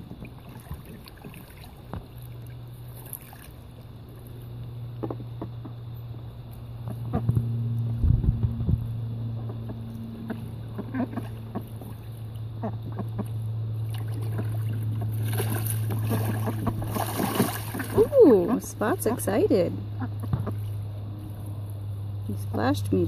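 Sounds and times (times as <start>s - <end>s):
ducks splashing and flapping: 0.0s - 4.4s, 9.4s - 20.8s
low machine hum: 0.0s - 23.0s.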